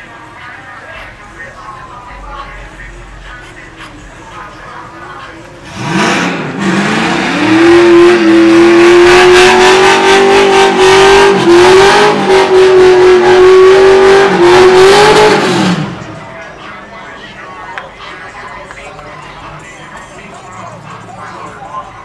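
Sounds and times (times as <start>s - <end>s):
car engine revving: 1.0s - 17.2s.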